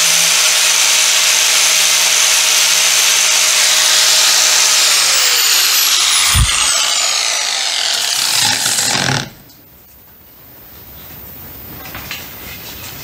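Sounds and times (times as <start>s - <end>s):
angle grinder sanding wood: 0.0s - 9.4s.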